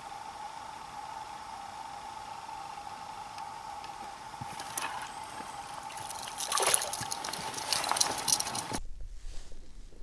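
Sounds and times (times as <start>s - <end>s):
water splashing: 4.4s - 8.8s.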